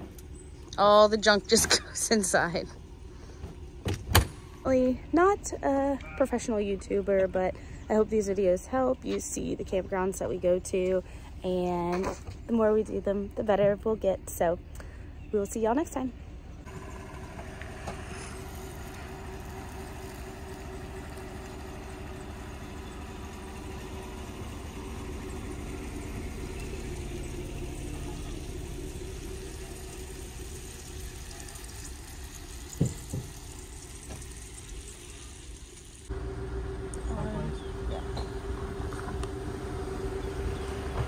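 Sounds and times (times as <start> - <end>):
truck engine idling: 16.1 - 41.0.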